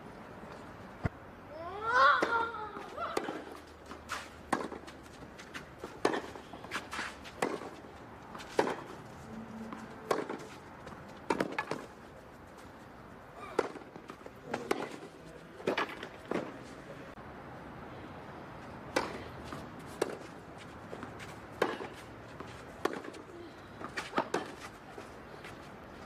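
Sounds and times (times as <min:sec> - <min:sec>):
tennis ball bouncing: 0:01.9 - 0:09.0, 0:09.6 - 0:12.0, 0:13.4 - 0:16.6, 0:18.9 - 0:24.8
tennis racket striking ball: 0:02.1 - 0:09.0, 0:09.7 - 0:10.6, 0:11.2 - 0:11.9, 0:13.5 - 0:16.6, 0:18.9 - 0:20.3, 0:20.9 - 0:23.2, 0:23.8 - 0:24.7.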